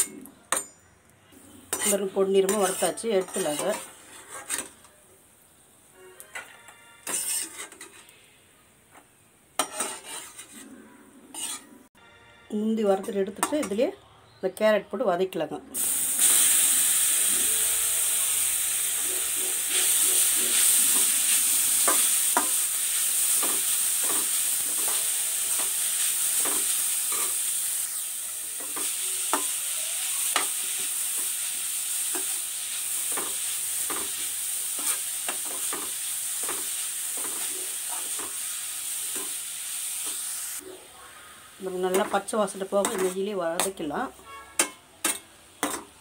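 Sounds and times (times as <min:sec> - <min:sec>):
carrot sizzling in a pan: 0:01.5 - 0:04.8, 0:05.5 - 0:08.2, 0:09.5 - 0:10.6, 0:11.3 - 0:11.7, 0:15.8 - 0:46.0
metal spoon scraping a pan: 0:01.5 - 0:04.9, 0:06.2 - 0:08.3, 0:09.6 - 0:11.9, 0:12.9 - 0:13.8, 0:17.2 - 0:29.6, 0:30.2 - 0:39.4, 0:41.7 - 0:46.0.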